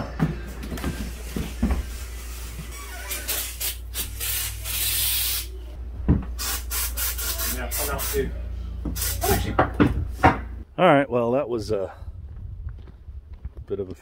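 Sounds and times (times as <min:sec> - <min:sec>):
aerosol spray hissing: 0:02.1 - 0:05.6, 0:06.4 - 0:08.2, 0:09.0 - 0:09.4.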